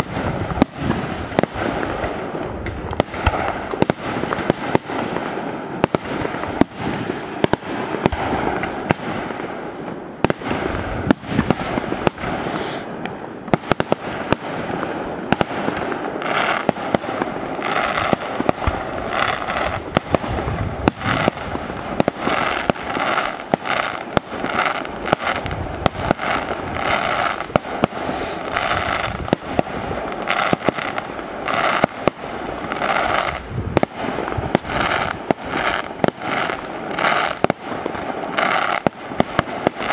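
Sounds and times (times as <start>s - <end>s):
fireworks bangs: 0.0s - 39.9s
hiss of bursting shells: 12.4s - 12.9s, 27.9s - 28.5s.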